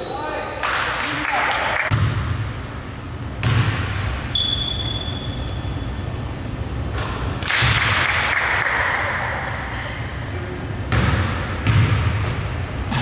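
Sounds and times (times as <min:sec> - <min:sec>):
low rumble of large hall: 0:00.0 - 0:13.0
basketball thudding on court: 0:03.4 - 0:03.9, 0:10.9 - 0:12.2.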